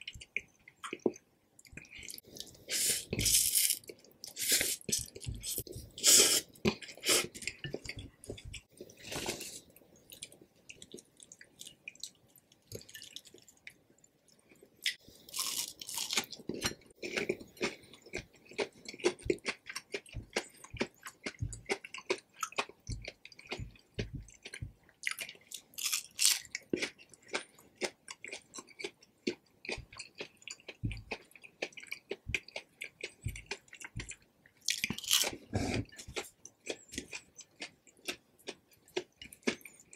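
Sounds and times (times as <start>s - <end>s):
wet chewing: 14.4s - 39.9s.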